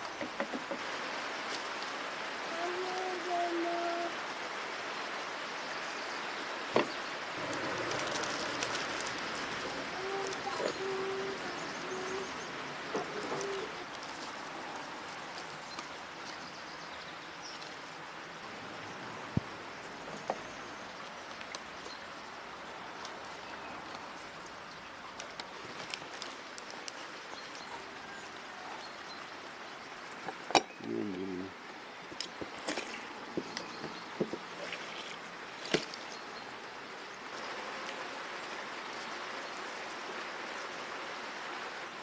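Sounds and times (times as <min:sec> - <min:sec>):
birds calling: 0:06.4 - 0:14.4.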